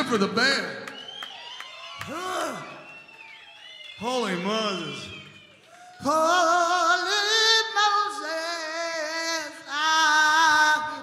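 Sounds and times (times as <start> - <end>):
man singing into a microphone: 5.9 - 11.0.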